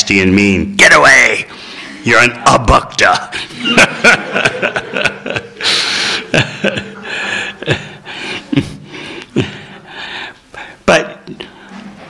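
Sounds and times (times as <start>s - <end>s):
man laughing: 3.5s - 8.8s.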